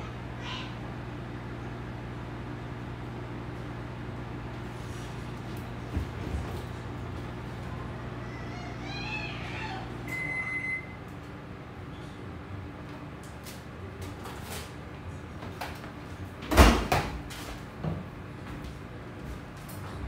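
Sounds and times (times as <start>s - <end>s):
short high beep: 10.1s - 11.0s.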